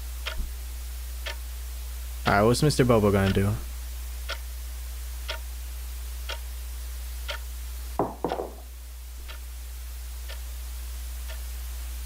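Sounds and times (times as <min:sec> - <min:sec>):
low steady hum: 0:00.0 - 0:12.0
clock ticking: 0:00.2 - 0:00.4, 0:01.2 - 0:01.4, 0:04.3 - 0:04.5, 0:05.3 - 0:05.5, 0:06.3 - 0:06.5, 0:07.3 - 0:07.5, 0:11.3 - 0:11.5.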